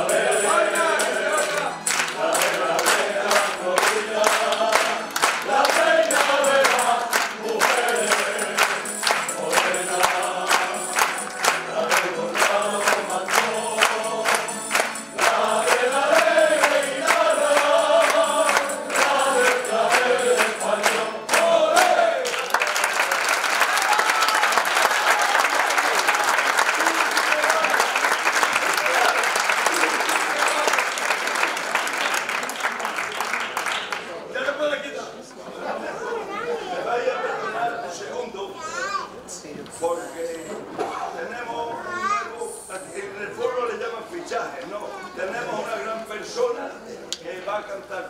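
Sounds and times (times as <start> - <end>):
male choir singing: 0.0 - 23.0
audience applauding: 0.0 - 34.3.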